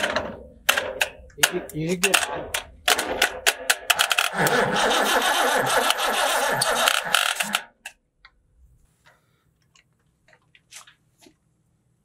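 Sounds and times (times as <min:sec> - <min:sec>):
tractor engine cranking: 0:00.0 - 0:07.9.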